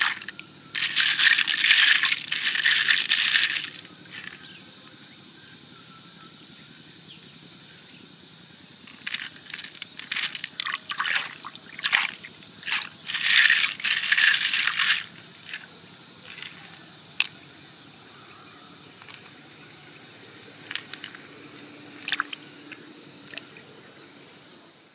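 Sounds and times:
wet pearls clicking and rattling: 0.0 - 4.4, 8.9 - 15.7, 16.3 - 17.3, 20.7 - 21.2, 22.0 - 22.5, 23.2 - 23.6.

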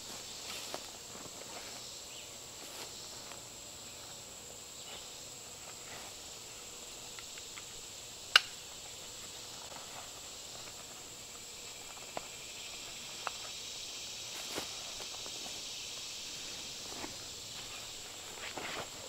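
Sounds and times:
insects droning: 0.0 - 19.0
sharp click: 8.3 - 8.6
faint rustles: 14.3 - 15.6, 16.3 - 19.0.

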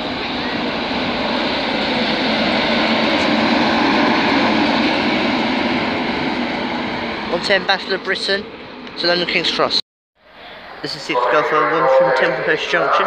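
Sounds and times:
train wheels rumbling on rail: 0.0 - 9.8.

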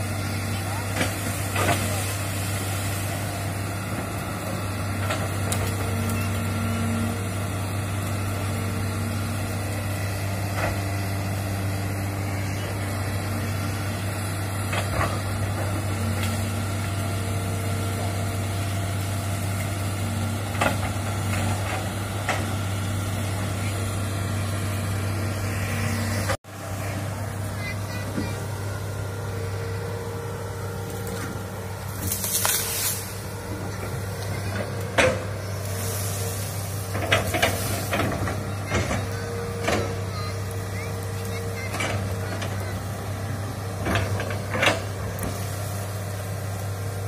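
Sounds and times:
excavator diesel engine: 0.0 - 47.0
branches cracking: 30.9 - 33.2.

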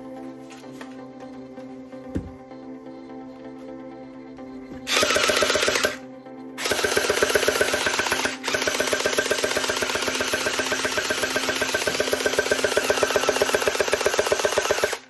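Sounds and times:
background music: 0.0 - 15.0
toy gun rapid-fire rattle: 4.9 - 6.0, 6.6 - 15.0.

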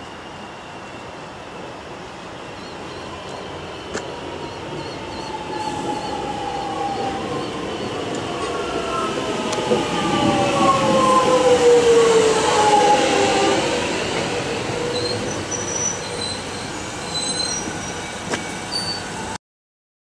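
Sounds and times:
wheel squeals: 13.9 - 19.3.

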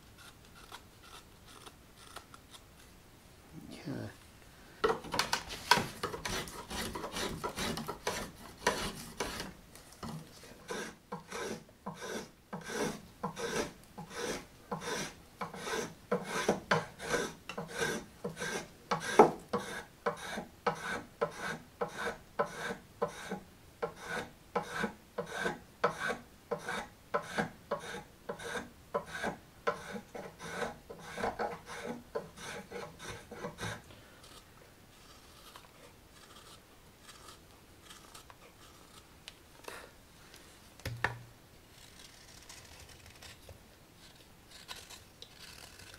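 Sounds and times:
knife scraping wood: 0.1 - 2.9, 4.8 - 39.9, 41.7 - 45.9.

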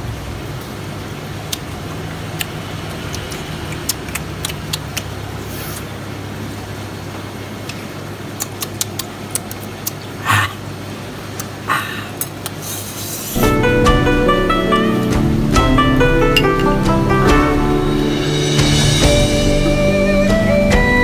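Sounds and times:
road traffic hum: 0.0 - 21.0
dishes clattering: 16.2 - 16.9
chopsticks tapping plates: 16.2 - 17.0.

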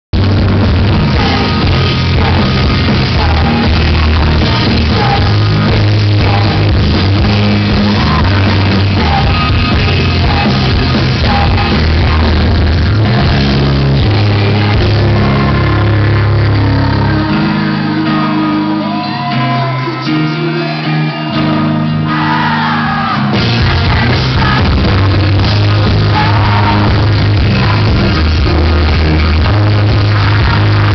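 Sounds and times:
bass guitar: 0.0 - 30.9
drums: 0.1 - 30.9
electric guitar: 0.2 - 30.9
live rock band playing: 0.2 - 30.9
woman singing: 1.1 - 21.6.

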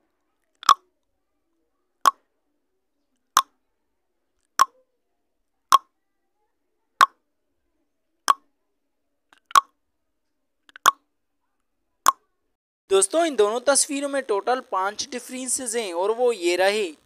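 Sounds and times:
timer ticking: 12.9 - 17.0.

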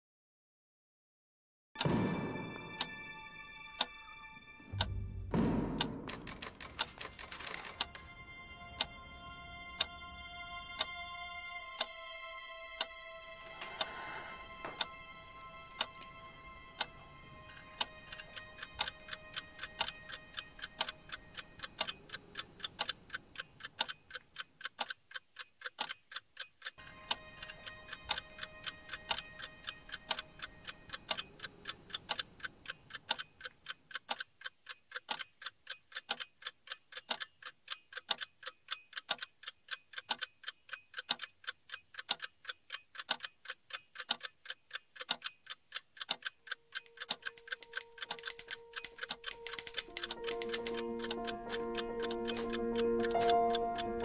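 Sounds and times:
clock ticking: 1.8 - 2.0, 3.8 - 4.0, 4.7 - 9.1, 9.8 - 11.0, 11.7 - 12.0, 12.7 - 54.0
faint sustained music tones: 1.8 - 21.8, 26.8 - 31.4, 47.4 - 54.0.

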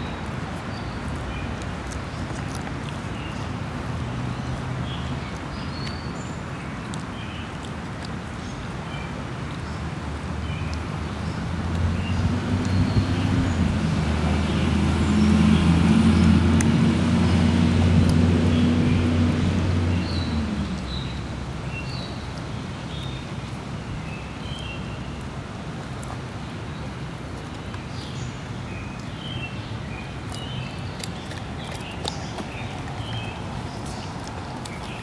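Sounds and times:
vehicle engine passing by: 11.4 - 21.5
birds chirping: 26.4 - 35.0.

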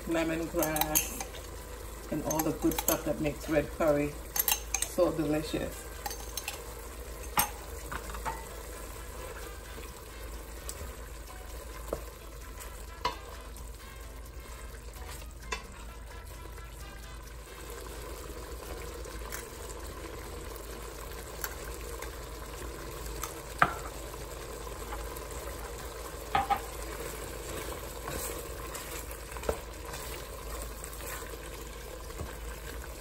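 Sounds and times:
food sizzling in hot oil: 0.0 - 33.0
wooden spoon knocking on pot: 26.3 - 26.7.

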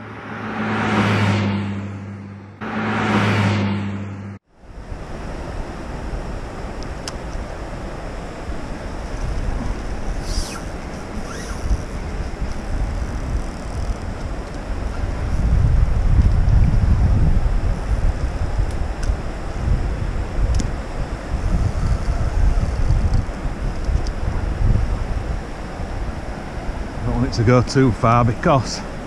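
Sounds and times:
whooshes: 0.0 - 4.4
car road noise: 0.0 - 29.0
wind buffeting microphone: 4.7 - 29.0.

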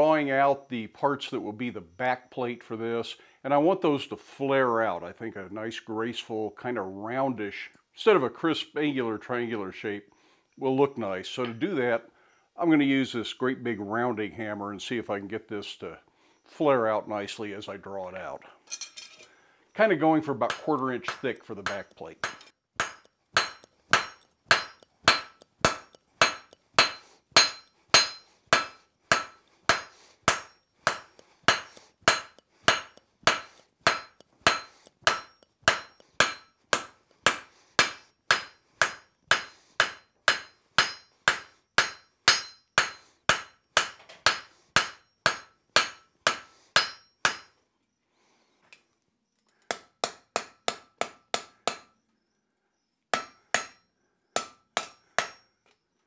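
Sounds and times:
hammer ringing on anvil: 20.5 - 47.5, 53.2 - 53.8, 54.4 - 55.5.

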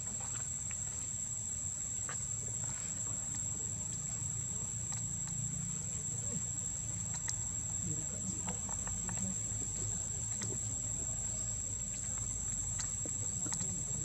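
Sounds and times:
insects droning: 0.0 - 14.0
faint clicks: 3.3 - 5.5, 6.7 - 7.6, 8.2 - 14.0.

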